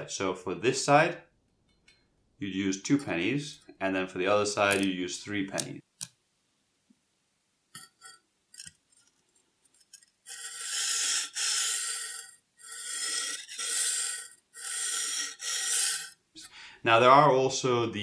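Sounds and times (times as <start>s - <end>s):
knife scraping on whetstone: 9.7s - 16.2s.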